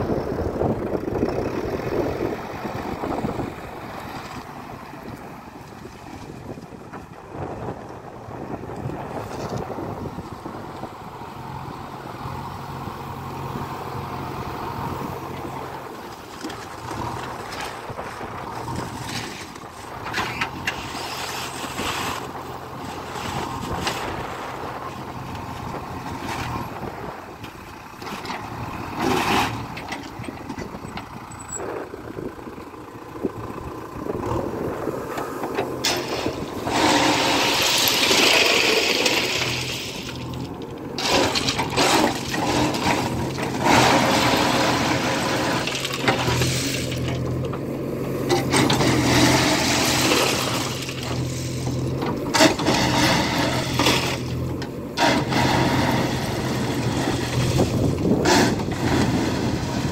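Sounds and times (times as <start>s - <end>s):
diesel engine running: 0.0s - 59.9s
rushing clatter of stone: 35.6s - 47.6s, 48.2s - 59.9s.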